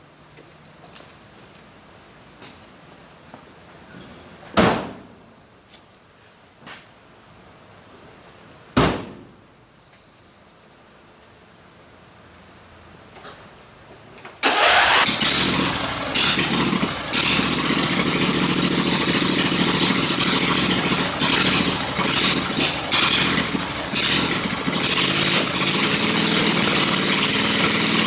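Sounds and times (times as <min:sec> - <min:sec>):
mower engine starting and revving: 0:14.4 - 0:28.0.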